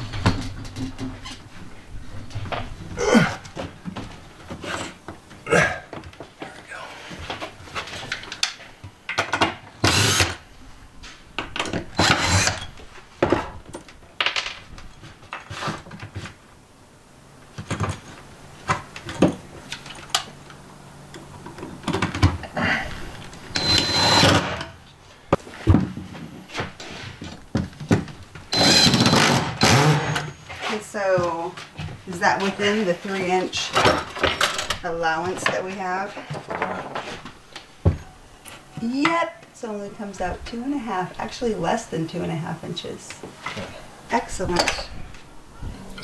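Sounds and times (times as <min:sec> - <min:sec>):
impact driver driving screws: 0:09.8 - 0:10.4, 0:12.0 - 0:12.7, 0:23.5 - 0:24.7, 0:28.5 - 0:30.3.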